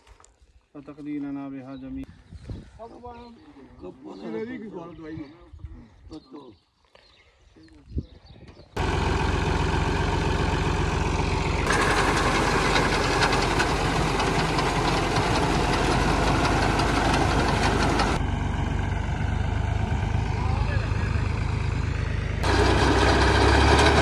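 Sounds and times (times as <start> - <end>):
tractor diesel engine running: 8.8 - 24.0.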